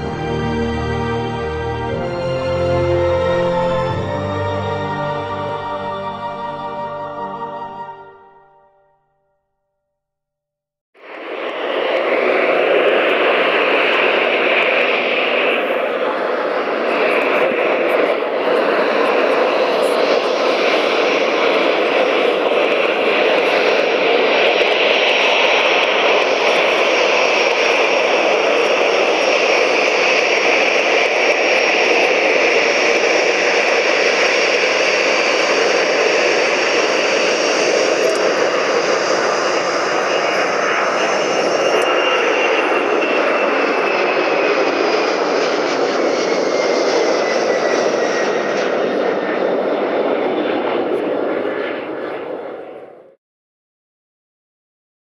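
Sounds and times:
jet engines roaring: 0:00.0 - 0:08.6, 0:11.0 - 0:53.2.

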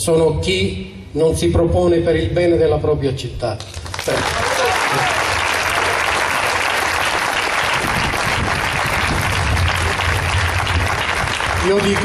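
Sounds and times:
crowd applauding: 0:03.6 - 0:12.0.

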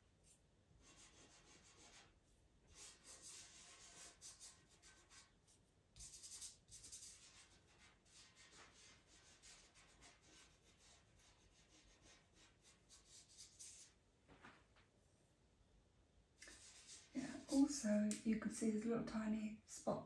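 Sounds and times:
pencil scratching and rubbing paper: 0:00.2 - 0:14.0, 0:16.4 - 0:17.8.

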